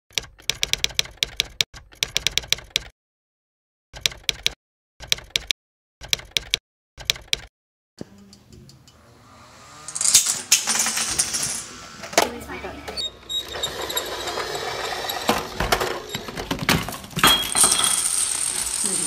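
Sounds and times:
typewriter keys clacking: 0.1 - 2.9, 4.0 - 7.5.

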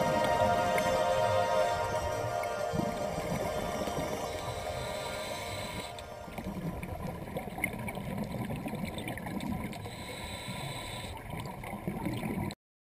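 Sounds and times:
underwater rushing and gurgling: 0.0 - 12.6.

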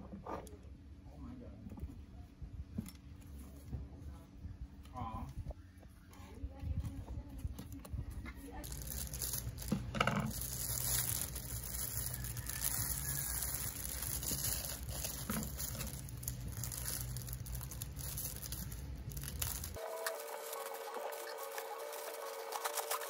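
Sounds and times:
plastic bag crinkling: 8.6 - 23.0
scissors cutting plastic: 8.6 - 23.0.

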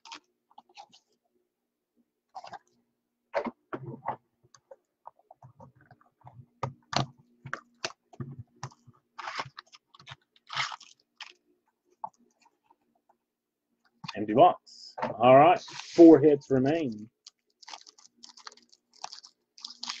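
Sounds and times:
wrapper and cardboard crinkling: 9.2 - 11.4, 17.2 - 20.0.

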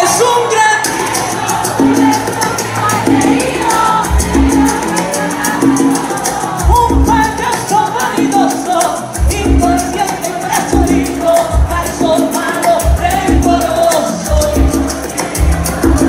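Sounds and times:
bass line: 0.0 - 16.0
percussion: 0.0 - 16.0
woman singing: 1.8 - 15.2.

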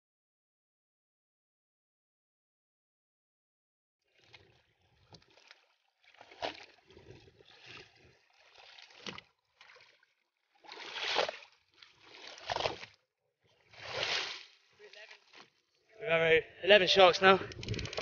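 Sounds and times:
water splashing against boat hull: 4.1 - 15.6.

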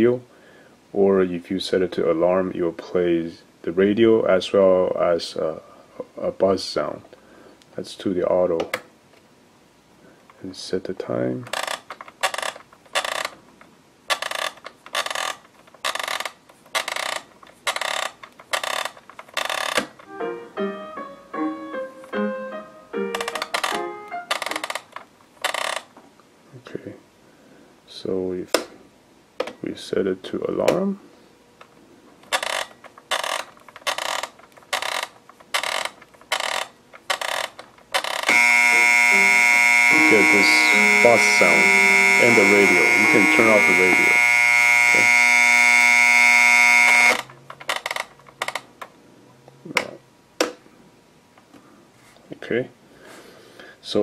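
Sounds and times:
clock radio knob ratcheting: 11.5 - 13.4, 14.1 - 20.0, 23.2 - 25.9, 32.2 - 40.4, 43.4 - 48.7
alarm buzzer buzzing: 38.2 - 47.3.

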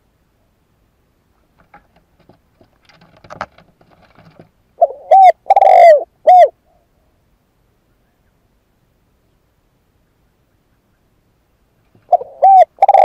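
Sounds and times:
faint clicks and rustles: 1.3 - 4.7
dove cooing: 4.8 - 7.0, 11.9 - 13.0.

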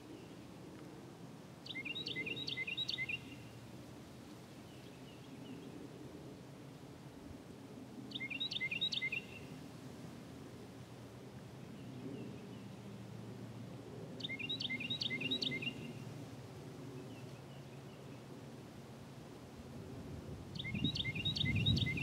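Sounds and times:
wind rustle: 0.0 - 22.0
songbird chirping: 1.6 - 3.5, 8.1 - 9.5, 14.2 - 16.0, 20.6 - 22.0.

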